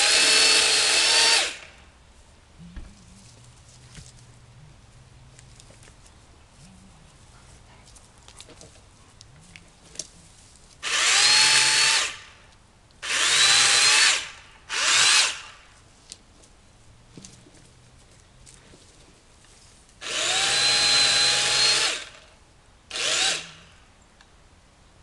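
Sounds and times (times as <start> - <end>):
electric chainsaw cutting limbs: 0.0 - 1.8, 10.8 - 12.4, 13.0 - 15.6, 20.0 - 23.8.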